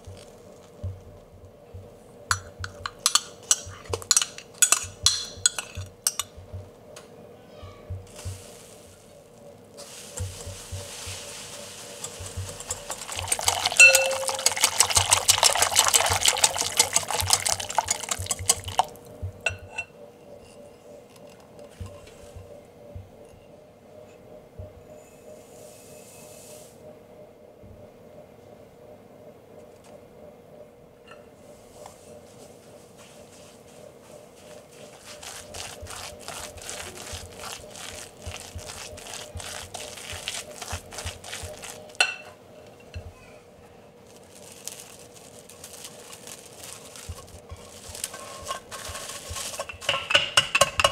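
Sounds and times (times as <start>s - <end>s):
whisk clinking on glass: 2.3s - 6.4s, 11.9s - 19.9s, 35.2s - 43.1s, 47.5s - 50.9s
rhythmic scraping with soft thumps: 7.9s - 26.0s, 44.2s - 49.9s
whisk beating batter in glass bowl: 10.2s - 19.1s, 34.4s - 42.2s.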